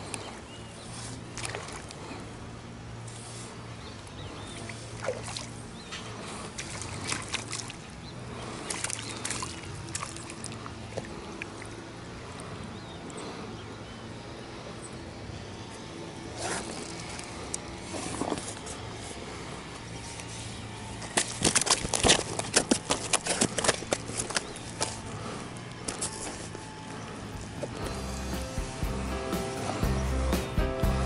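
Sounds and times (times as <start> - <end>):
fish splashing in water: 0.0 - 2.2, 4.4 - 12.5, 21.0 - 27.8.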